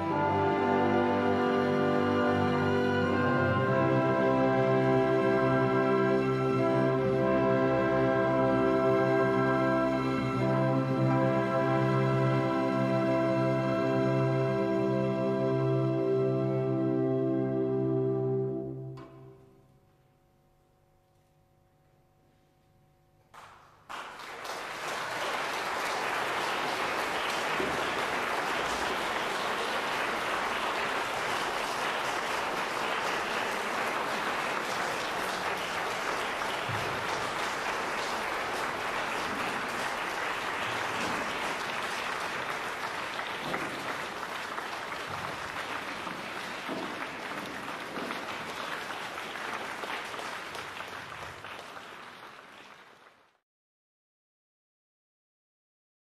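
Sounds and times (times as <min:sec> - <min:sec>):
audience applauding: 0:00.0 - 0:13.2, 0:23.3 - 0:53.4.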